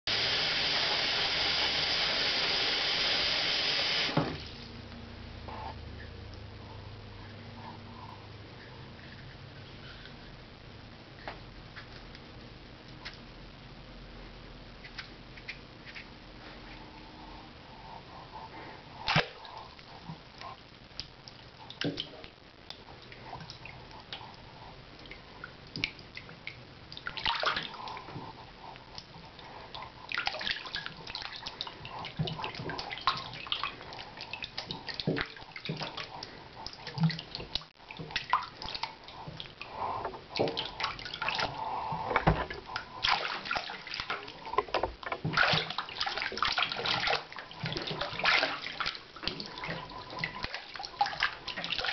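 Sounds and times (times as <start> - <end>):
hands splashing in water: 45.3 - 51.9.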